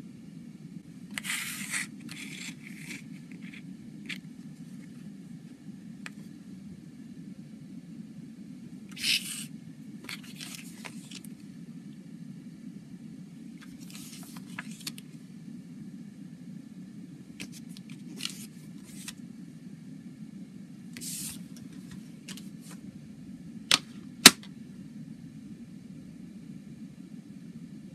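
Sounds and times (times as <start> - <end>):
paper booklet rustling: 1.1 - 5.0, 8.9 - 11.3, 13.6 - 15.0, 17.4 - 19.2, 21.0 - 22.8
plastic case clicks: 23.7 - 24.5.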